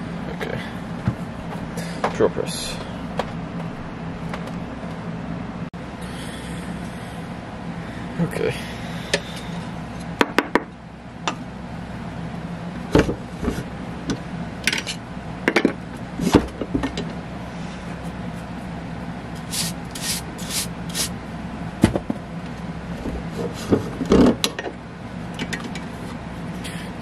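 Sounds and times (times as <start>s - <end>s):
steady low hum: 0.0s - 27.0s
short scraping rasps: 19.4s - 21.1s.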